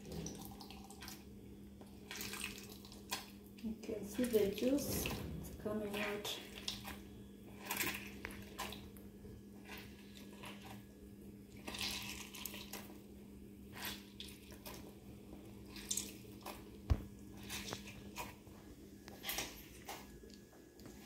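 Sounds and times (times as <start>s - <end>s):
juice dripping into ceramic cup: 0.0s - 3.6s
faint steady hum: 0.0s - 21.0s.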